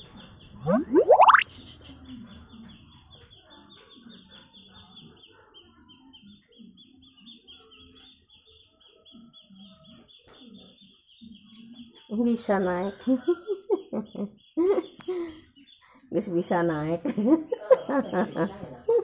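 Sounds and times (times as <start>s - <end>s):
small bird chirping rapidly: 0.0s - 12.6s.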